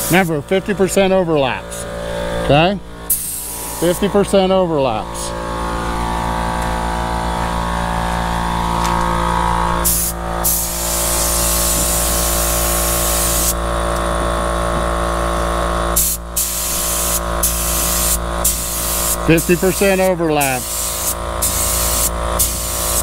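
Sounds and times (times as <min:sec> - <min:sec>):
paint spray gun hissing: 0:00.0 - 0:00.3, 0:03.1 - 0:04.0, 0:09.8 - 0:13.6, 0:16.0 - 0:23.0
steady machine hum: 0:00.0 - 0:23.0.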